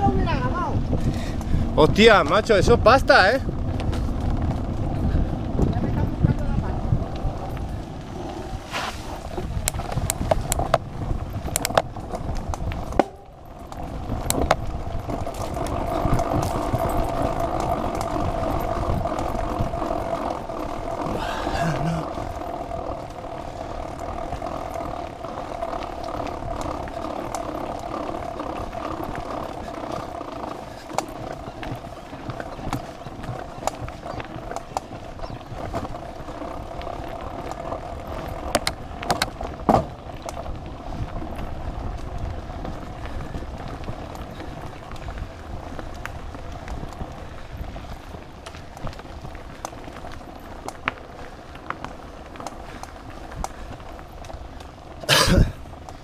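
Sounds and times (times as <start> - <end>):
bike tyres and frame rattling: 0.0 - 56.0
bike knocking over bumps: 8.8 - 40.6.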